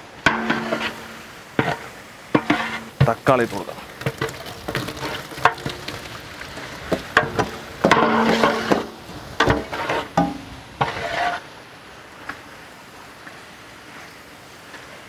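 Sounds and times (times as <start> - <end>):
metal ladle scraping and knocking pot: 0.2 - 6.0, 6.8 - 11.4.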